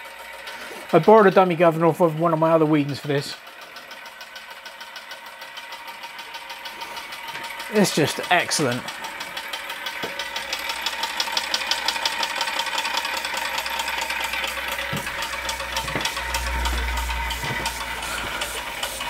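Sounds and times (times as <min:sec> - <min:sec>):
steam engine clattering and puffing: 0:00.1 - 0:19.0
low rumble: 0:14.6 - 0:19.0.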